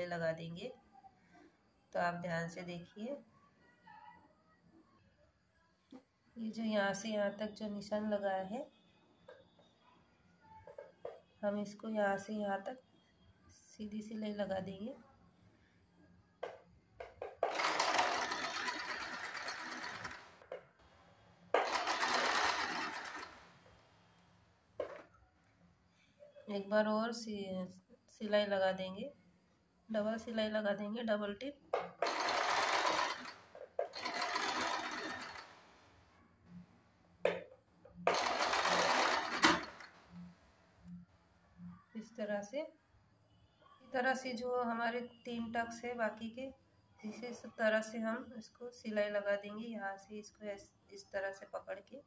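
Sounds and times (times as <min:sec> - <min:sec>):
sewing machine clicks: 0:17.4 - 0:20.4, 0:21.6 - 0:23.4, 0:31.8 - 0:35.7, 0:38.1 - 0:40.0
sewing machine stitching: 0:17.4 - 0:20.5, 0:21.6 - 0:23.6, 0:31.8 - 0:35.9, 0:38.0 - 0:40.2.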